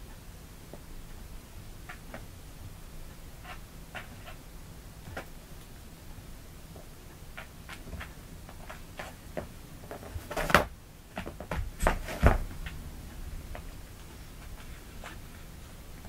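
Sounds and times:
kittens tapping and scuffing: 3.1 - 4.4, 5.0 - 5.4, 6.7 - 16.0.

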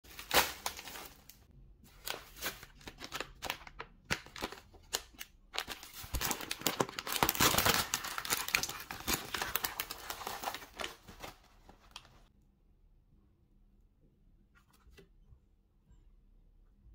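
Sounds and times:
plastic packaging crinkling: 0.0 - 12.3.

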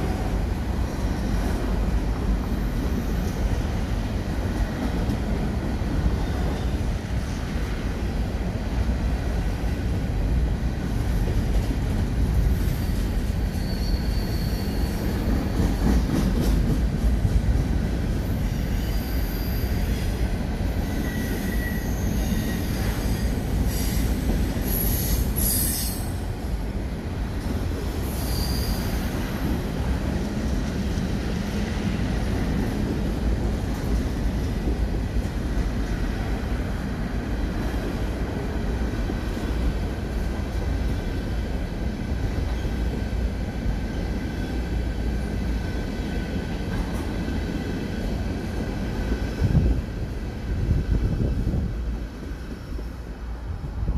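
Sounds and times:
train wheels rumbling on rail: 0.0 - 53.9
wheel squeal: 12.8 - 15.8, 20.8 - 24.0, 28.0 - 29.1.

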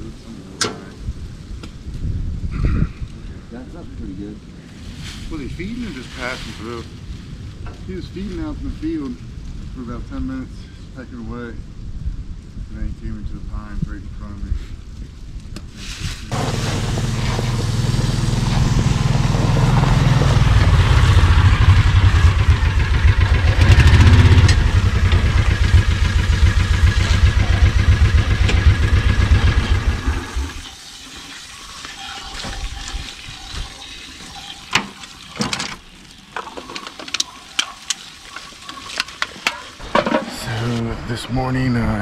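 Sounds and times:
garden hose spraying water: 4.9 - 6.9, 15.7 - 40.8
vehicle engine running: 16.3 - 30.6.

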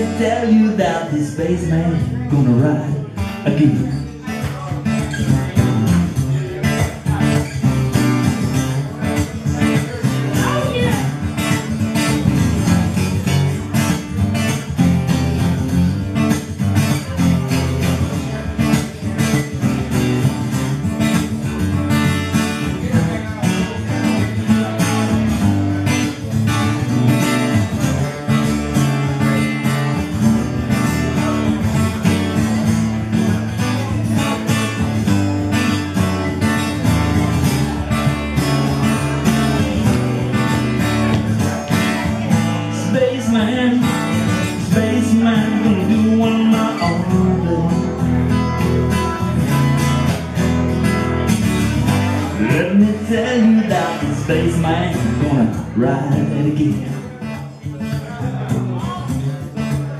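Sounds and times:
acoustic guitar strumming: 0.0 - 59.9.

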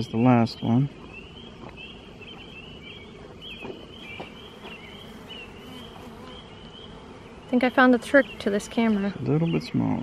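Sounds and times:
bees buzzing: 0.0 - 10.0.

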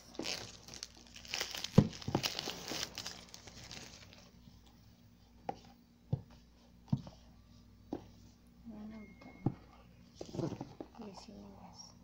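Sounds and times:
plastic wrapping crinkling: 0.0 - 4.3.

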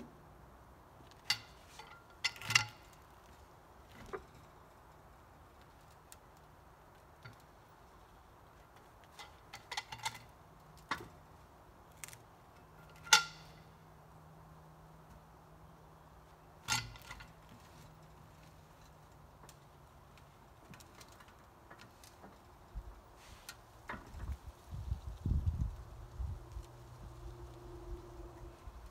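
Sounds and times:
metal hardware clinking: 1.0 - 3.3, 12.5 - 13.8, 16.6 - 18.1.

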